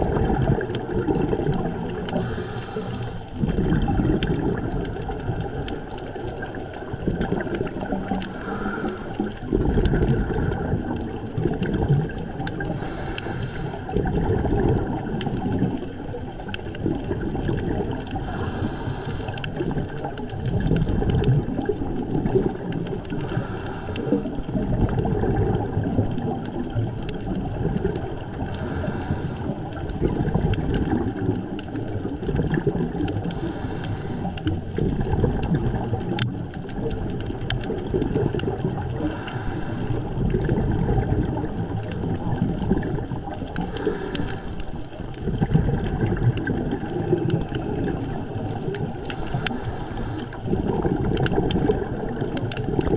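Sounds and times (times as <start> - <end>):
scuba regulator breathing bubbles: 0.0 - 52.9
underwater low rumble: 0.0 - 52.9.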